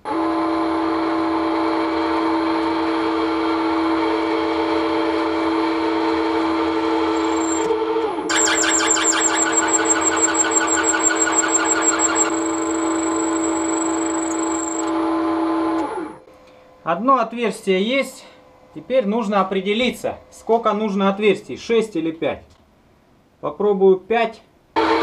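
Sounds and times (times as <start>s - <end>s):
milling machine spindle hum: 6.1s - 7.7s, 8.3s - 15.0s
drill chattering and squealing: 7.0s - 7.7s, 8.3s - 14.9s.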